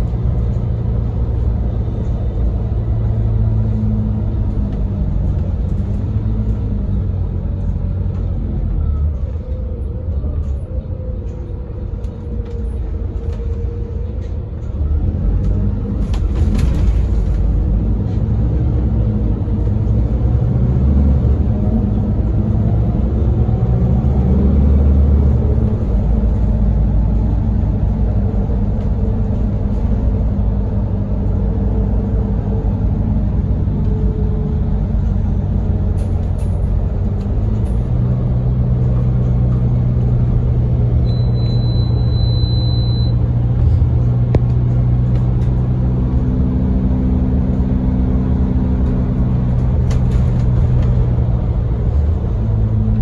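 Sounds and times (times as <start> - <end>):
bus diesel engine running: 0.0 - 53.0
road and tyre noise: 0.0 - 53.0
high steady beep: 41.0 - 43.2.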